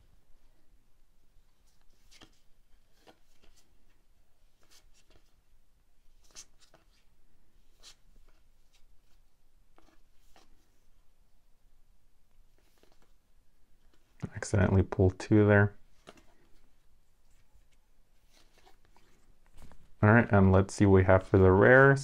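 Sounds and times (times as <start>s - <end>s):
cards sliding and flicking: 1.8s - 3.8s, 4.6s - 5.3s, 12.6s - 13.2s, 16.0s - 16.6s, 17.6s - 19.8s.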